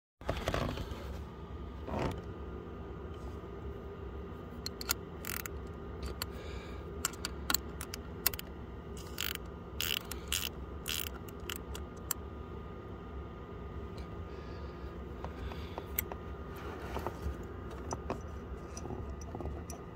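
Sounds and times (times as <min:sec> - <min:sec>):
steady low hum: 0:00.2 - 0:19.9
spanner clicking and scraping: 0:04.6 - 0:06.4, 0:07.0 - 0:12.2, 0:17.0 - 0:19.9.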